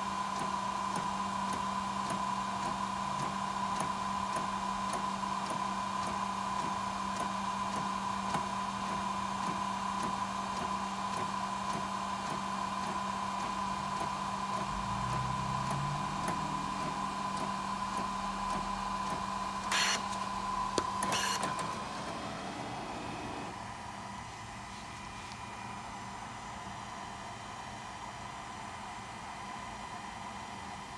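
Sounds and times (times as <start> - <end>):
printer motor hum: 0.0 - 30.9
lower motor note: 14.7 - 18.3.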